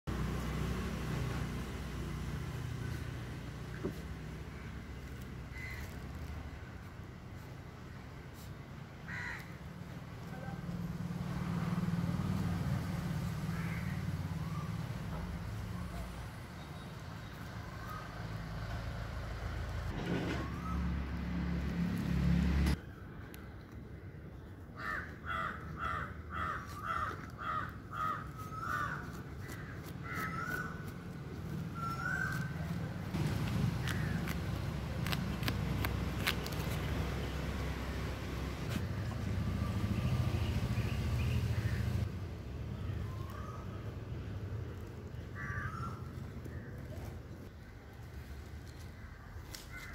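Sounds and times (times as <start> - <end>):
crow cawing: 5.5 - 6.0, 9.0 - 9.6, 13.5 - 14.0, 24.8 - 30.8, 33.8 - 34.2, 45.3 - 46.6
bird calls: 25.8 - 34.4.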